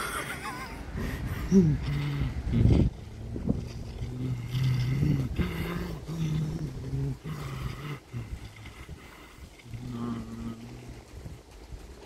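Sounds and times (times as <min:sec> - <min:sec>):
person humming: 0:01.4 - 0:03.0, 0:03.8 - 0:09.0, 0:09.6 - 0:11.1.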